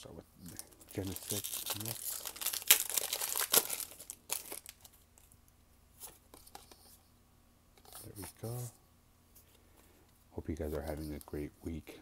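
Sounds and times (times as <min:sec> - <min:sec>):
foil wrapper crinkling: 0:00.5 - 0:05.3.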